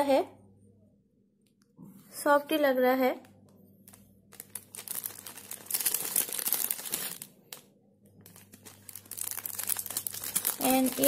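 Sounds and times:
plastic packaging crinkling: 0:03.8 - 0:11.0.

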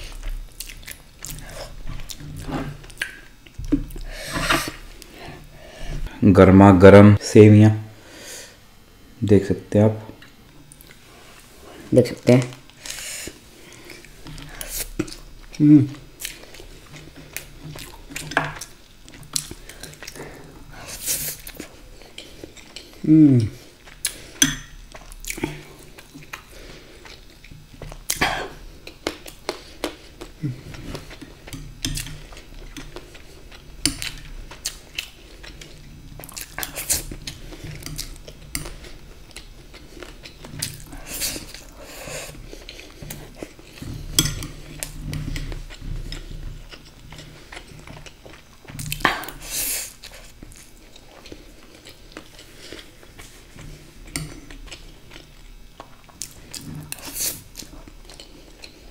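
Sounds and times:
person chewing: 0:00.0 - 0:06.1, 0:12.6 - 0:58.9.

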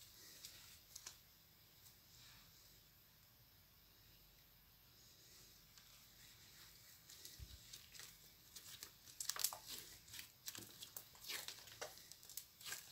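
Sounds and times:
slime clicking and crackling: 0:07.7 - 0:12.9.

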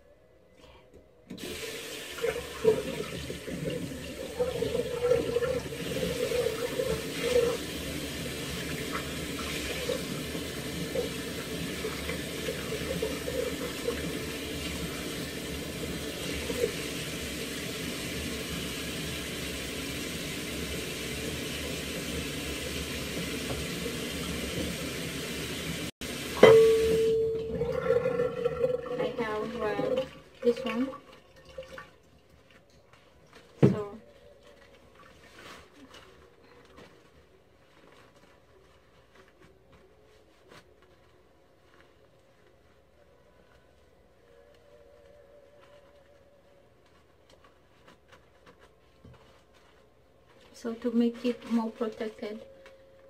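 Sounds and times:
running water: 0:01.4 - 0:36.1.

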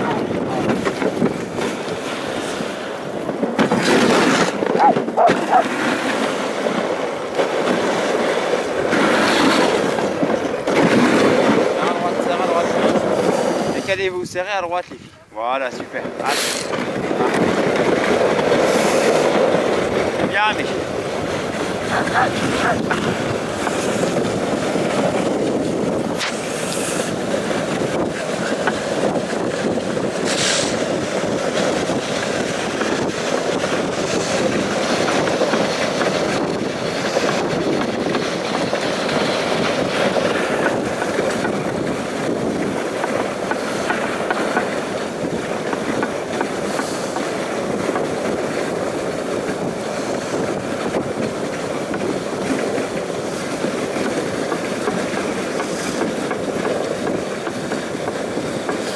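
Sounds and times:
sled rattling: 0:00.0 - 0:58.9
sled runners scraping over snow: 0:00.0 - 0:58.9.

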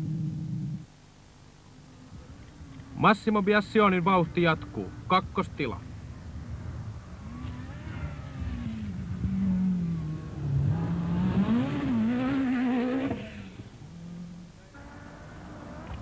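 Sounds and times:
rally car engine revving: 0:07.2 - 0:16.0.

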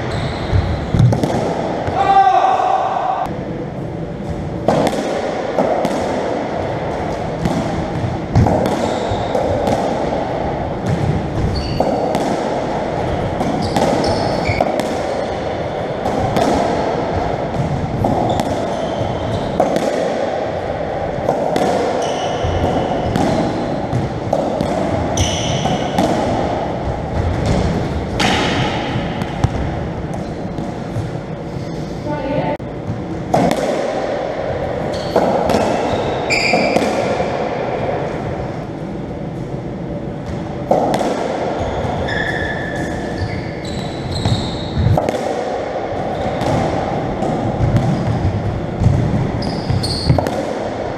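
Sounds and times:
ball smacking racquets and walls: 0:00.0 - 0:02.1, 0:04.2 - 0:31.4, 0:32.7 - 0:38.8, 0:39.5 - 0:50.9
shoes squeaking on wooden floor: 0:41.6 - 0:42.5, 0:49.4 - 0:50.2.

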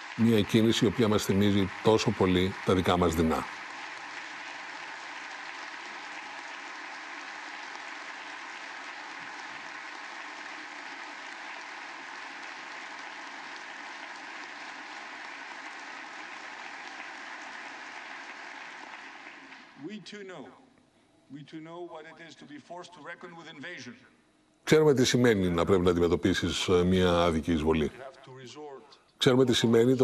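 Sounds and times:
audience applauding: 0:00.0 - 0:19.8.

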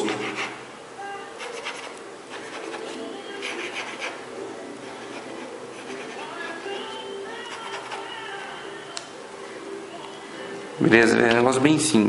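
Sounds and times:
pencil scratching on paper: 0:00.0 - 0:00.6, 0:01.4 - 0:08.6.

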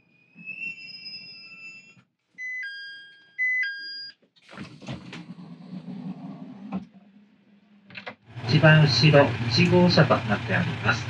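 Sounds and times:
two-note door chime: 0:01.7 - 0:04.1
train door sliding open: 0:04.5 - 0:06.9
railcar engine humming: 0:08.3 - 0:11.0.

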